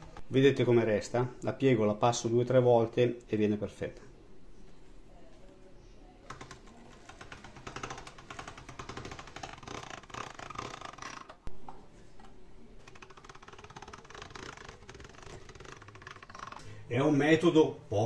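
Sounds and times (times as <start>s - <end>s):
pasta machine crank clicking: 12.8s - 16.7s.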